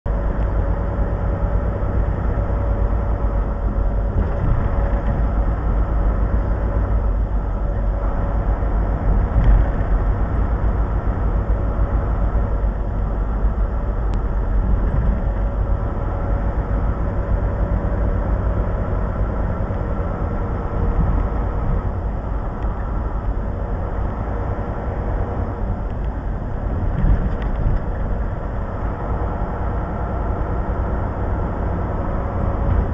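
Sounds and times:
truck engine and road noise: 0.0s - 32.9s.

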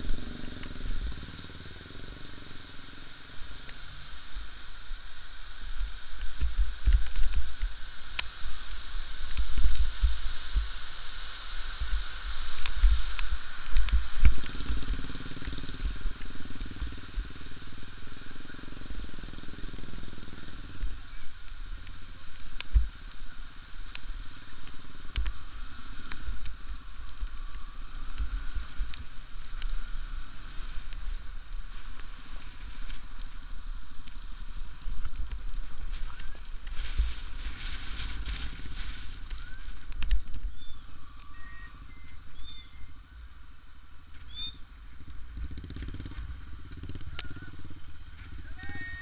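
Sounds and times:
motorcycle engine: 0.0s - 4.1s, 14.0s - 22.2s, 44.8s - 49.0s
wind noise: 4.1s - 18.4s, 20.7s - 49.0s.

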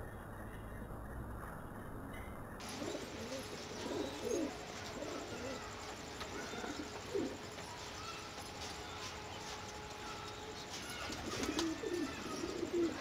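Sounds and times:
small birds chirping: 0.0s - 13.0s
pigeon cooing: 2.6s - 13.0s.

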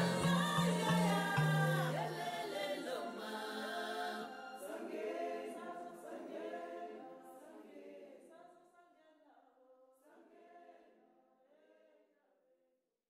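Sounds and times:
a cappella choir singing: 0.0s - 8.4s, 10.1s - 11.0s.

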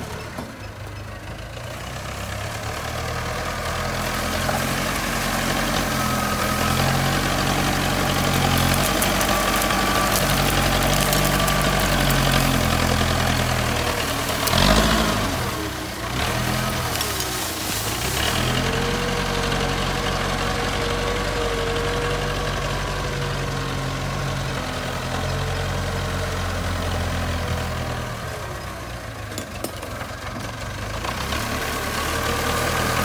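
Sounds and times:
diesel engine working under load: 0.0s - 33.0s.

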